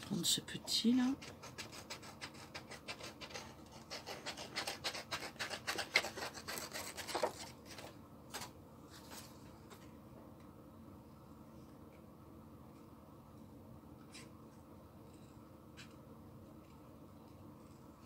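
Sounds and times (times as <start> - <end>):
scissors snipping paper: 1.2 - 7.9.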